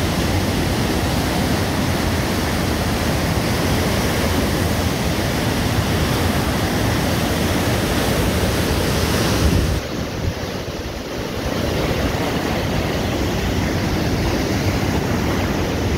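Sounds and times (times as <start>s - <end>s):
roar of white water: 0.0s - 15.9s.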